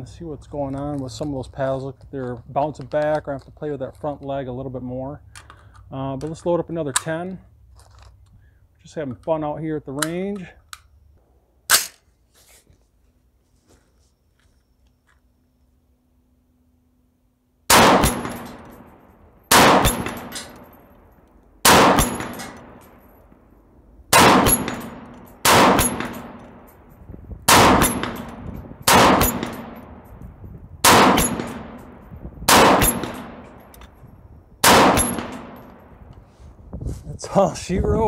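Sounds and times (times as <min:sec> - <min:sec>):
rifle shots with echo: 0:17.7 - 0:20.8, 0:21.6 - 0:23.1, 0:24.1 - 0:26.8, 0:27.5 - 0:30.1, 0:30.8 - 0:33.8, 0:34.6 - 0:36.0.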